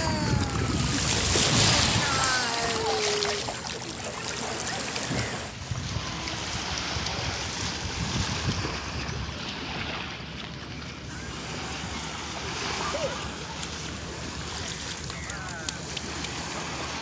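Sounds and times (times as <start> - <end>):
wind on microphone: 0.0 - 10.3
small waves washing onto sand: 0.0 - 17.0.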